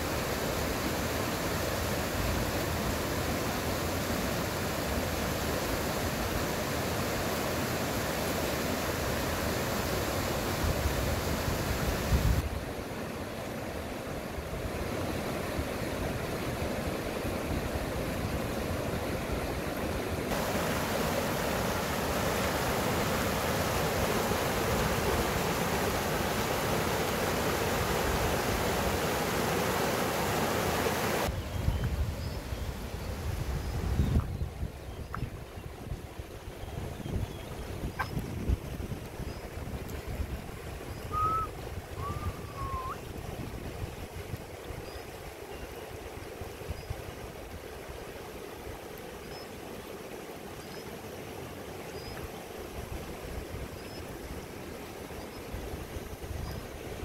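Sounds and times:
river rushing over rocks: 0.0 - 31.3.

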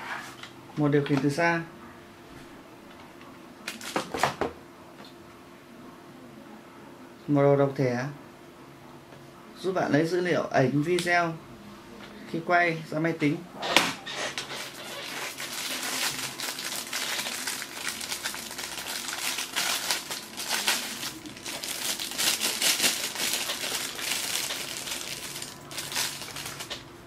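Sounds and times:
plastic bag crinkling: 14.5 - 26.9.

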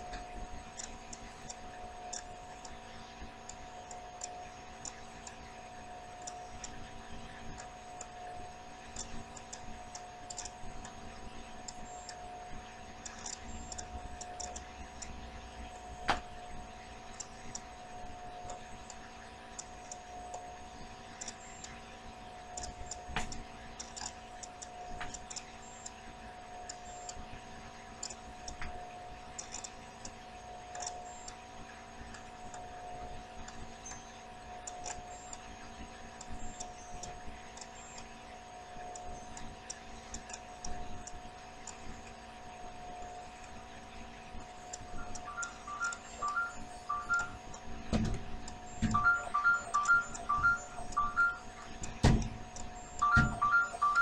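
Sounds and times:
faint high ticking: 0.0 - 21.8, 44.4 - 47.8, 48.4 - 54.0
steady humming tone: 0.0 - 54.0.

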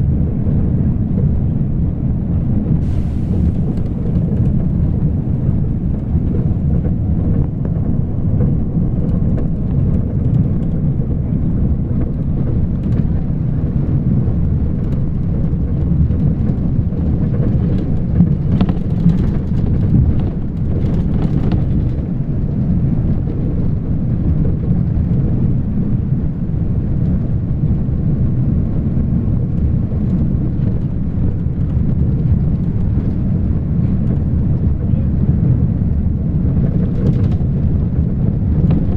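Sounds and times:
vehicle road rumble: 0.0 - 38.9.

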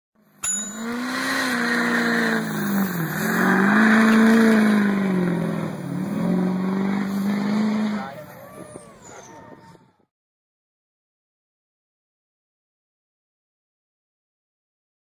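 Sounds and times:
vehicle engine shifting gears: 0.2 - 10.1.

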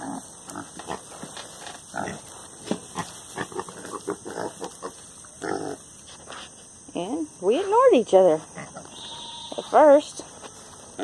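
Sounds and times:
pig grunting: 0.0 - 1.0, 1.9 - 2.3, 2.9 - 5.8.

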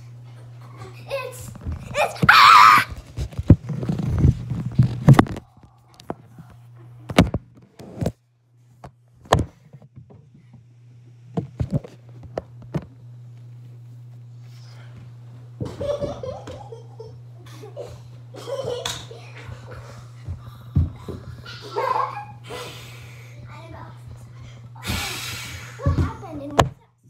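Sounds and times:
high-pitched wavering cry: 2.1 - 3.0.

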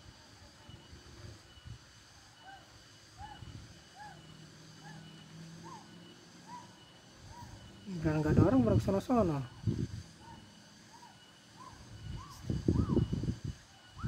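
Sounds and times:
insects trilling: 0.0 - 14.0
animal rising and falling calls: 2.4 - 7.8.

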